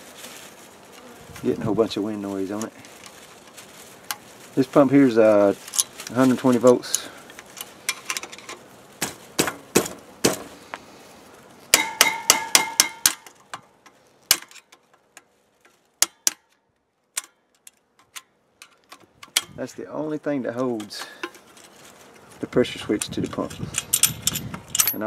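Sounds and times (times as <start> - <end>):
tools clicking on metal parts: 22.9 - 25.0.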